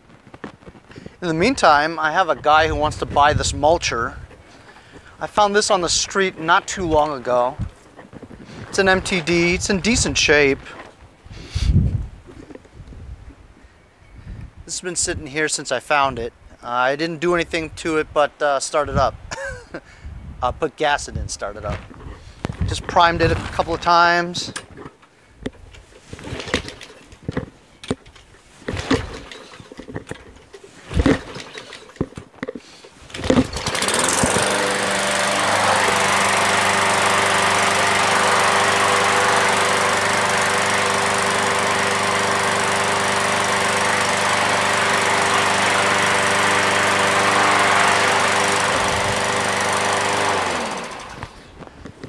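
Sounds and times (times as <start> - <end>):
lawn mower engine running: 0.6 - 10.9, 25.6 - 52.0.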